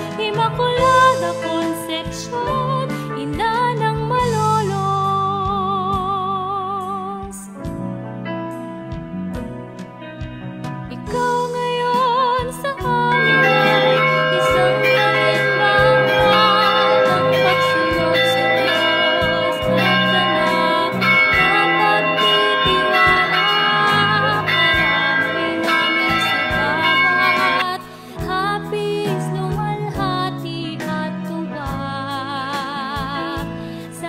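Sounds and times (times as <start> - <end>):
slow melody of held notes: 13.0 - 28.1.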